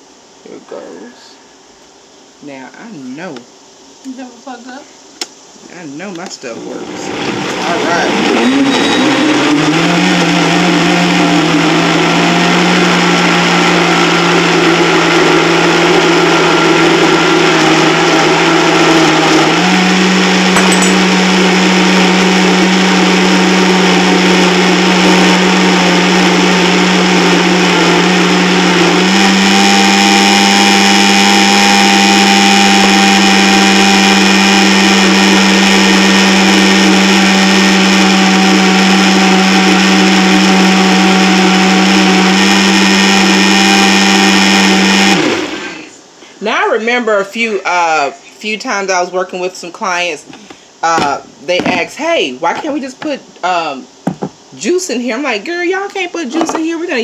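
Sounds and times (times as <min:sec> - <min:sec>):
blender running: 0:06.6 - 0:45.9.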